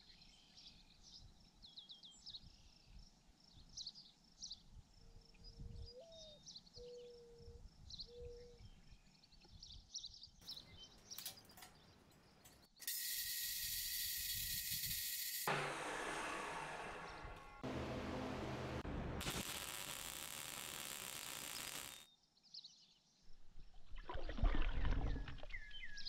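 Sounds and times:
birds chirping: 10.4s - 12.8s
chop saw cutting steel: 12.7s - 22.1s.

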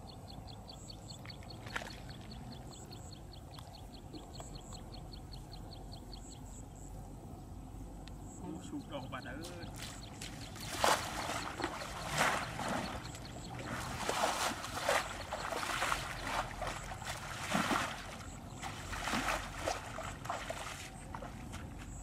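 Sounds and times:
muddy water splashing: 1.2s - 2.7s, 9.4s - 22.0s.

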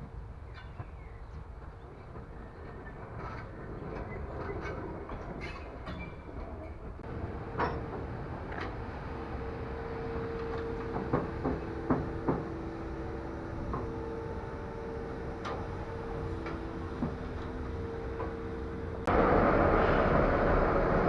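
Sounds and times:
steam locomotive hum: 0.0s - 21.0s.

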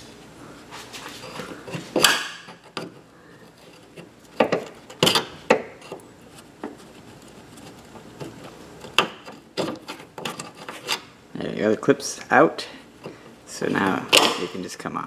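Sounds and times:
screwdriver scraping metal clip: 7.0s - 11.1s.

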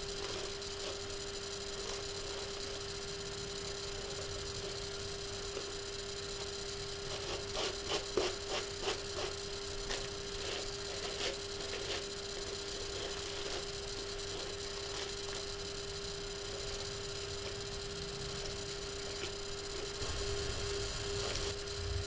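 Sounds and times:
steady hum with hiss: 0.0s - 22.0s.

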